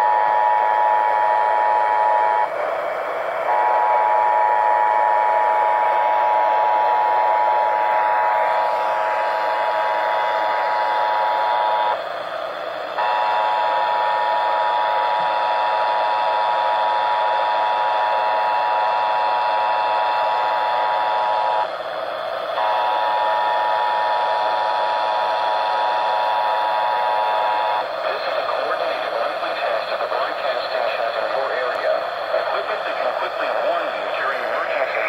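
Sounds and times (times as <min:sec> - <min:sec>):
radio static hiss: 0:27.7 - 0:35.0.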